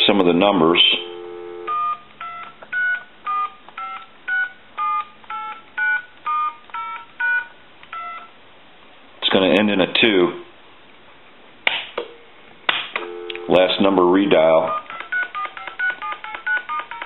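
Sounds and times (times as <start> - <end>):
telephone dial tone: 0.9 - 8.3, 13.0 - 13.8, 14.6 - 17.0
touch-tone key beeps: 1.1 - 8.3.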